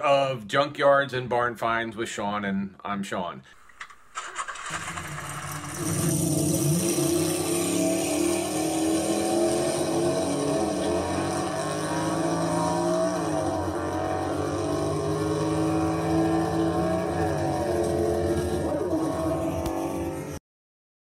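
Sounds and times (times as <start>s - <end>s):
car engine running under load: 3.8s - 20.4s.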